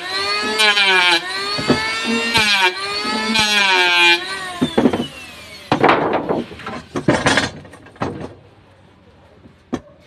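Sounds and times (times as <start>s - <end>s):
hand saw rasping through wood: 0.0s - 7.2s.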